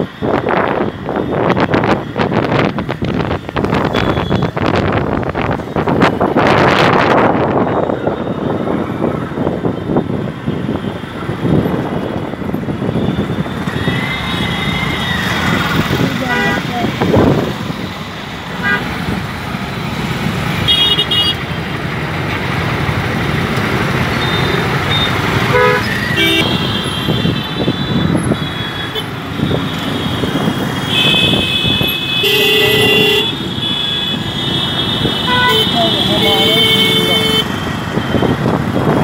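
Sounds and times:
road traffic rumble: 0.0 - 39.0
vehicle horns honking: 3.8 - 4.6, 16.1 - 16.9, 18.6 - 19.0, 20.6 - 21.6, 24.2 - 38.4.

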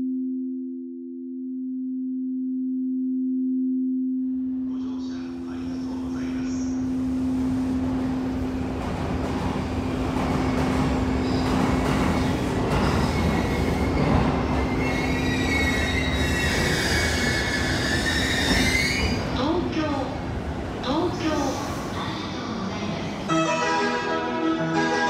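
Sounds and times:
train rumbling: 4.7 - 25.0
high metallic squeal: 14.7 - 19.2.

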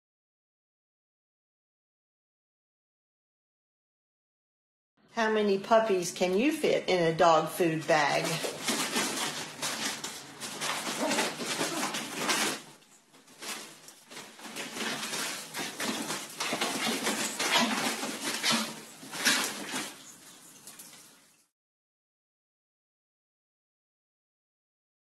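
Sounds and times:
bag crinkling and rustling: 7.8 - 21.4.

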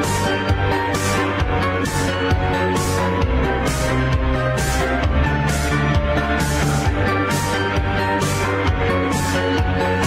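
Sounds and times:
music with steady low bass: 0.0 - 10.0.

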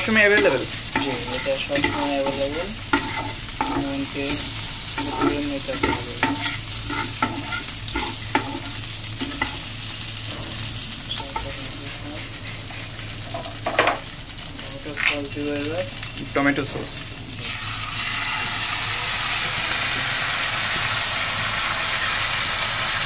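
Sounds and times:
spatula scraping a frying pan: 0.0 - 9.7
steady low hum: 0.0 - 14.9
oil sizzling: 0.0 - 23.0.

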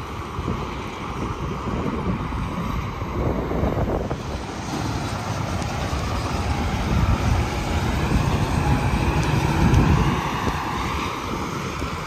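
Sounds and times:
highway traffic rumble: 0.0 - 12.0
wind buffeting microphone: 0.0 - 12.0.

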